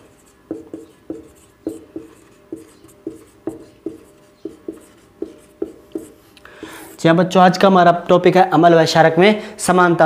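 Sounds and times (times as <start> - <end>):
marker tapping on whiteboard: 0.5 - 6.2.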